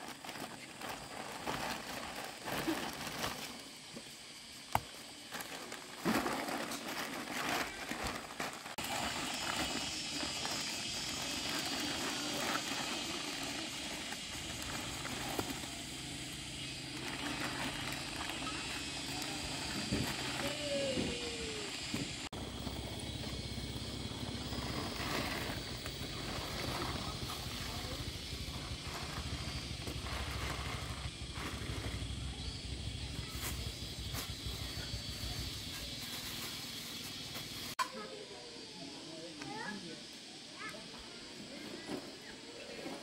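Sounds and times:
plastic bag rustling and crinkling: 0.0s - 4.2s, 4.8s - 15.8s, 16.6s - 20.8s.

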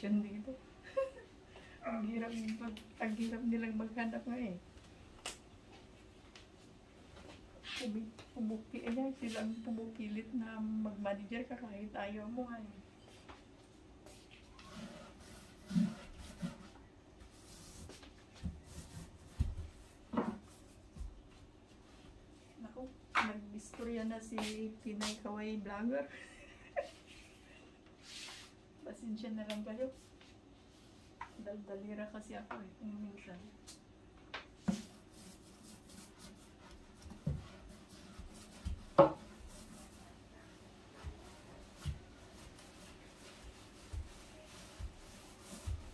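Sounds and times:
paint brush strokes on wood: 34.6s - 45.9s.

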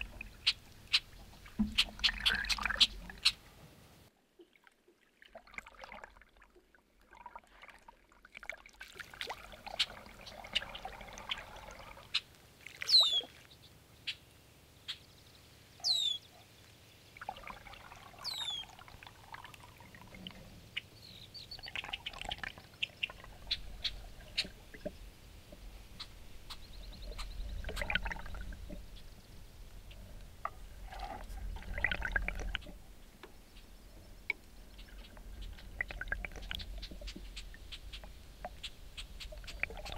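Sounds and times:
paddle strokes in water: 0.0s - 3.4s, 4.1s - 13.6s, 21.7s - 39.9s.

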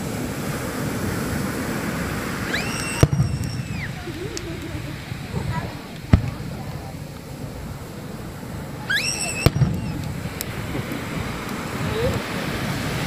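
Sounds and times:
surf rushing: 0.0s - 13.0s
firework whistle: 2.1s - 6.9s, 8.6s - 12.2s
firework bang: 2.4s - 11.4s
faint crackles: 2.4s - 12.4s.

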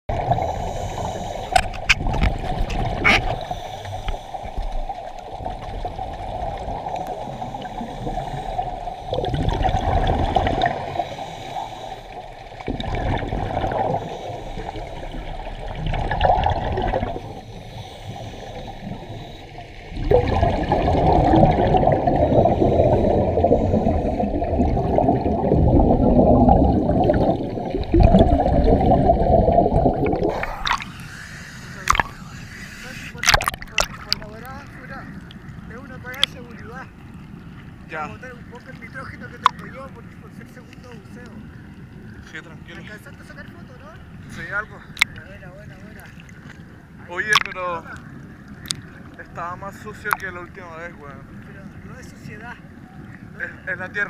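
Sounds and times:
scuba exhaust bubbles gurgling: 0.1s - 36.3s.

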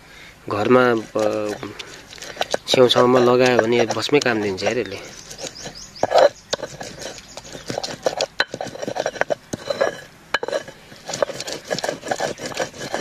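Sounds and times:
stone scraping on stone: 0.6s - 13.0s
stone clicks and knocks: 5.4s - 13.0s.

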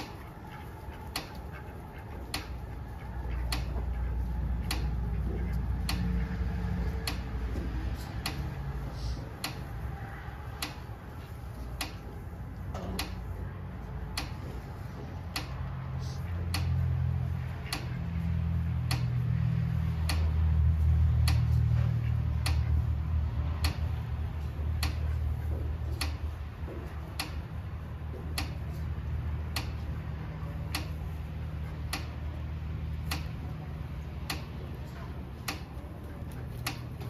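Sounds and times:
sharp repeating tick: 0.0s - 12.2s, 14.0s - 30.0s, 30.6s - 32.3s, 32.9s - 33.5s, 34.1s - 34.7s, 35.4s - 37.0s.

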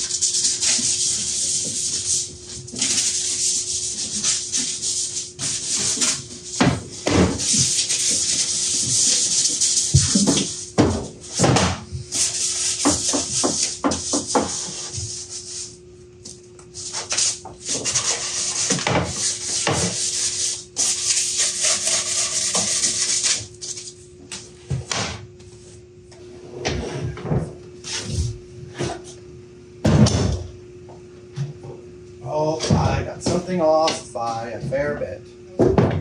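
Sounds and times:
hand sanding wood: 0.0s - 11.4s, 12.1s - 15.8s, 16.8s - 23.9s.

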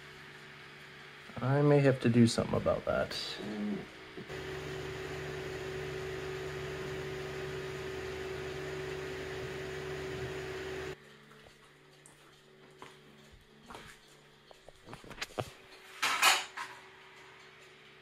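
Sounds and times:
projector cooling fans humming: 0.0s - 11.0s.

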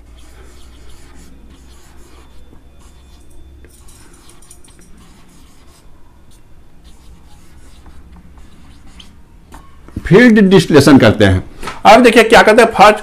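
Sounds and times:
marker scratching on whiteboard: 0.0s - 9.8s.

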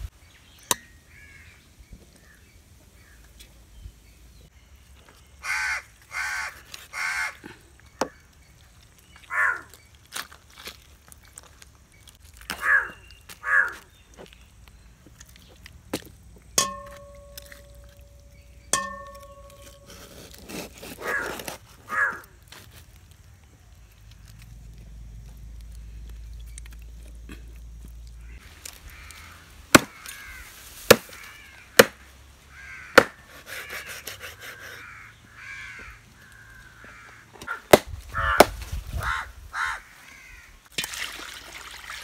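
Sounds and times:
crows cawing: 1.1s - 1.6s, 5.4s - 7.5s, 9.3s - 9.7s, 12.5s - 13.9s, 21.0s - 21.3s, 21.9s - 22.3s, 28.2s - 31.9s, 32.5s - 33.2s, 34.5s - 40.6s
sharp metallic clink: 16.6s - 19.9s.

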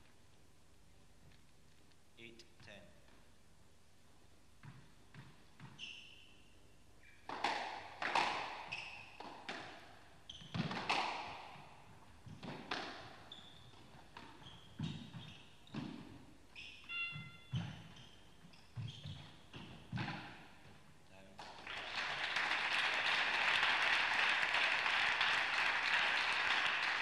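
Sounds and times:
shoes squeaking on floor: 4.6s - 7.3s, 8.6s - 9.3s, 10.2s - 11.0s, 12.2s - 20.9s
squash ball hits: 7.3s - 9.9s, 10.5s - 13.2s, 19.1s - 20.8s.

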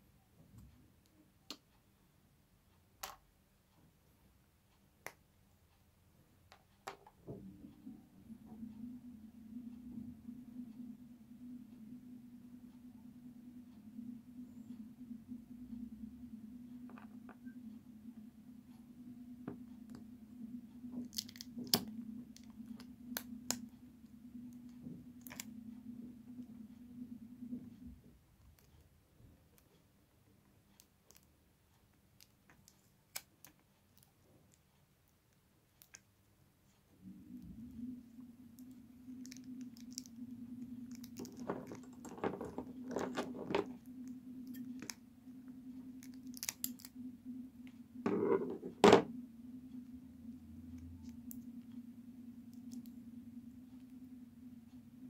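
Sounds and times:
low hum: 5.5s - 32.8s, 35.8s - 55.0s
adhesive tape crackling: 46.0s - 46.9s.

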